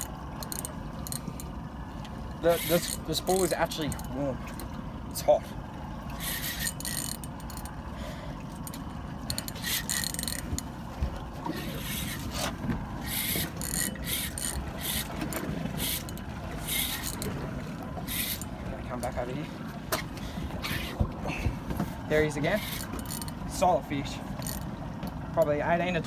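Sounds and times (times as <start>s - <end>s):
fishing reel drag buzzing: 0.0s - 1.5s, 2.4s - 4.1s, 6.1s - 10.7s, 11.6s - 17.4s, 18.0s - 18.5s, 22.4s - 23.4s, 24.4s - 24.7s.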